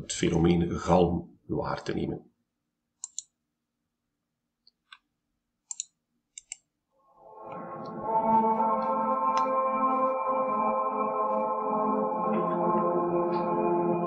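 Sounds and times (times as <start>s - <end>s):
man's voice with ringing reverberation: 0.0s - 2.3s
computer mouse clicks: 3.0s - 3.4s, 4.6s - 6.7s.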